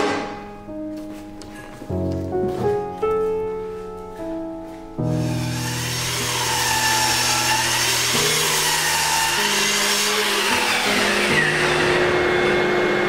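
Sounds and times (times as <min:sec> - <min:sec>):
mitre saw motor running: 0:05.2 - 0:13.0.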